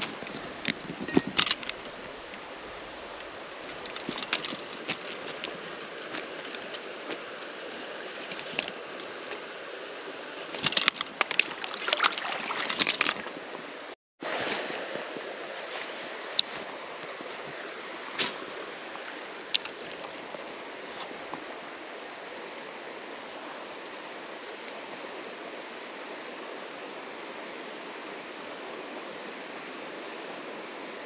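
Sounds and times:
creek water running: 0:00.0 - 0:31.0
water splashing and dripping: 0:10.4 - 0:14.8.

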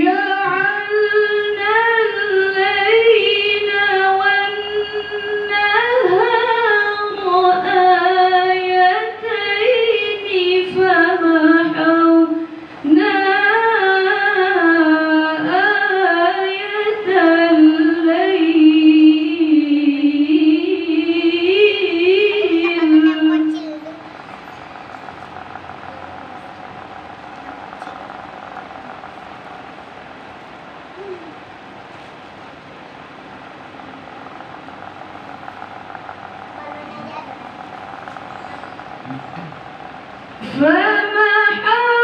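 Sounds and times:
woman reciting melodically: 0:00.0 - 0:30.3, 0:39.6 - 0:42.0.

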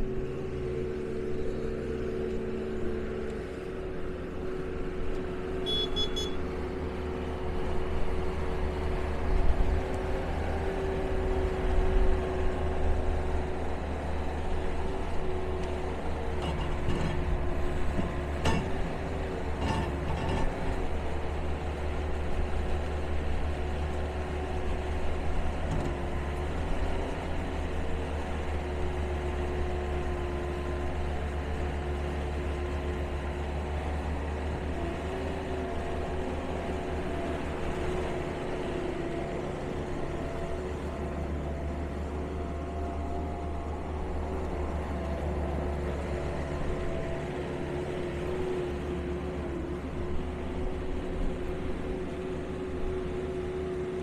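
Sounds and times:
turbo diesel engine running: 0:00.0 - 0:20.0.

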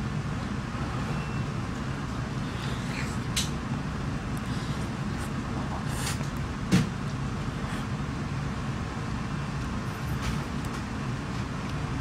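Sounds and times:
restaurant background rumble: 0:00.0 - 0:12.0.

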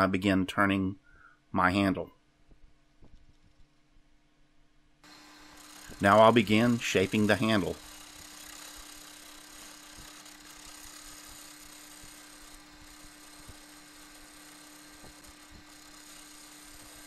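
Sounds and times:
turning tool shaving wood: 0:05.0 - 0:17.0
wood lathe humming: 0:05.0 - 0:17.0.

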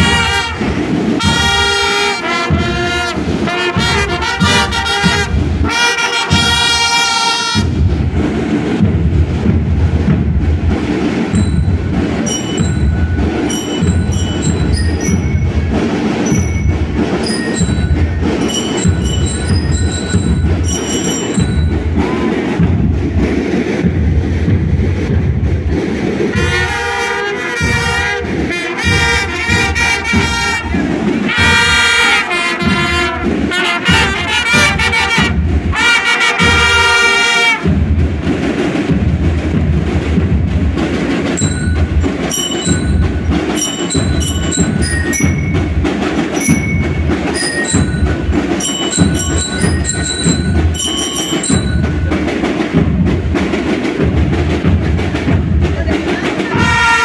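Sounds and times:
trumpets playing melody: 0:00.0 - 0:07.8, 0:26.3 - 0:37.8, 0:56.4 - 0:57.0
marching drums: 0:00.0 - 0:57.0.

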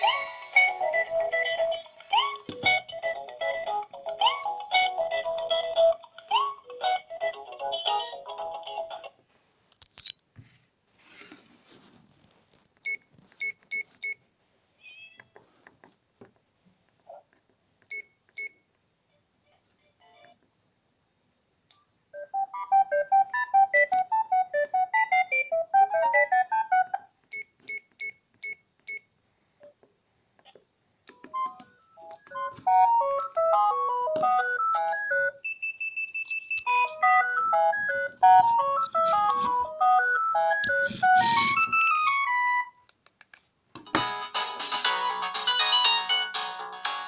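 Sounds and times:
held high tone: 0:00.0 - 0:05.7
phone ringtone melodies: 0:00.0 - 0:09.0, 0:22.2 - 0:27.0, 0:31.3 - 0:42.8, 0:44.2 - 0:47.0.

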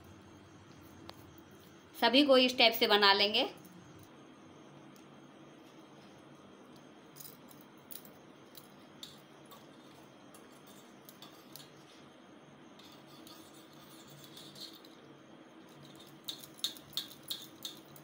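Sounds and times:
steady low hum: 0:00.0 - 0:18.0
light clicks and taps on bowl: 0:16.0 - 0:18.0.

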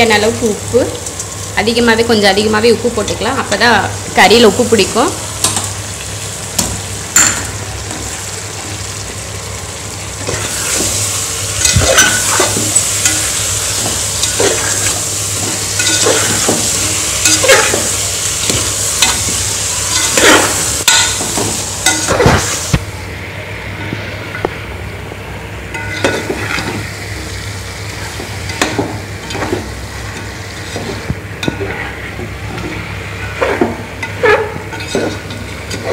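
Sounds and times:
chicken sizzling in oil: 0:00.0 - 0:22.8, 0:25.8 - 0:35.9
metal spatula scraping a pot: 0:30.5 - 0:35.9.

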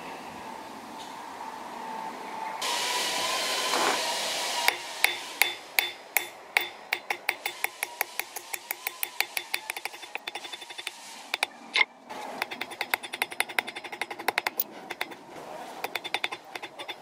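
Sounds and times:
loud steady hiss: 0:02.6 - 0:11.5
hammer tapping metal on anvil: 0:04.7 - 0:11.5, 0:12.4 - 0:15.2, 0:15.8 - 0:17.0.

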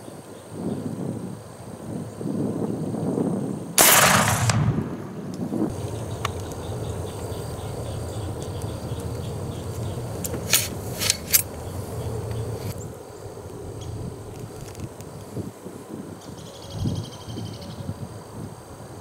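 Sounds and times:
low background rumble: 0:03.8 - 0:14.6.

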